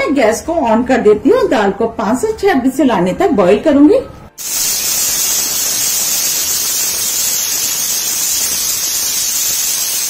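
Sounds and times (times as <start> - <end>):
pressure cooker whistle hissing: 4.4 - 10.0.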